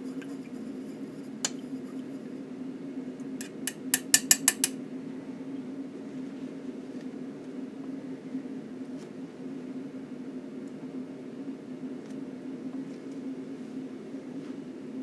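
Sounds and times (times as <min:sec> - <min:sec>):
steady low hum: 0:00.0 - 0:15.0
sharp clicking taps: 0:03.7 - 0:04.8.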